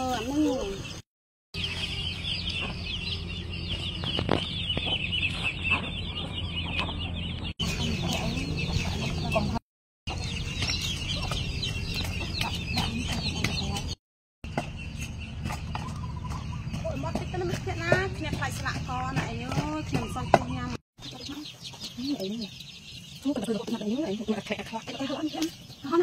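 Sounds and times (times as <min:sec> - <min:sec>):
chickens clucking: 0:01.6 - 0:26.0.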